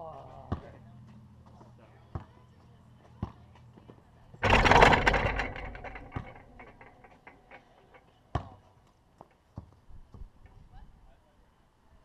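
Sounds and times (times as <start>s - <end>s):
basketball hoop rim rattling: 4.4s - 8.5s.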